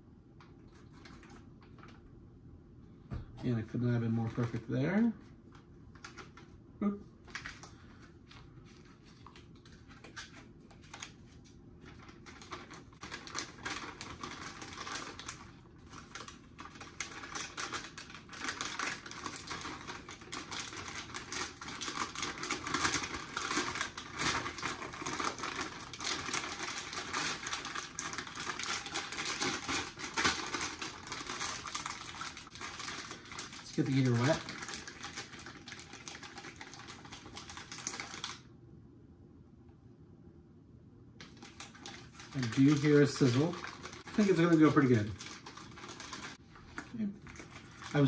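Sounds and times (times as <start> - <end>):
plastic pouches crinkling: 3.8 - 5.1, 7.2 - 38.5, 41.2 - 48.0.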